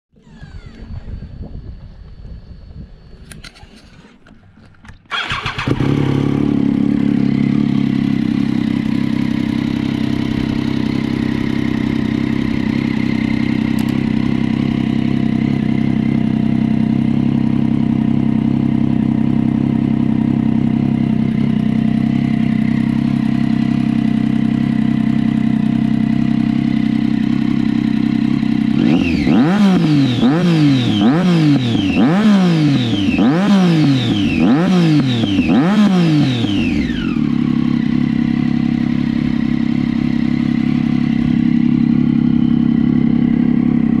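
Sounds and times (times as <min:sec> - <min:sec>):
quick throttle blips: 0:03.2 - 0:06.6
motorcycle engine idling: 0:04.2 - 0:44.0.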